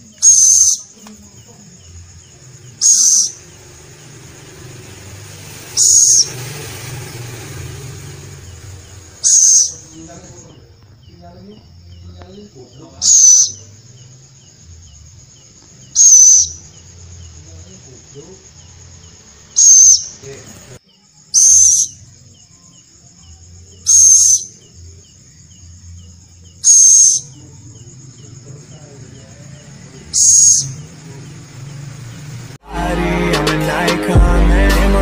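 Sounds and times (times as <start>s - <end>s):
owl high-pitched call: 0.2s - 1.0s, 2.8s - 3.4s, 5.7s - 6.4s, 9.2s - 10.0s, 13.0s - 13.6s, 15.8s - 16.7s, 19.5s - 20.2s, 21.3s - 22.0s, 23.8s - 24.6s, 26.6s - 27.4s, 30.1s - 30.8s.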